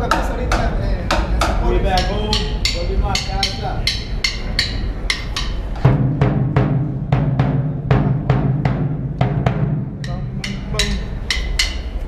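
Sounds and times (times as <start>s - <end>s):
bass drums beaten: 0.0s - 12.0s.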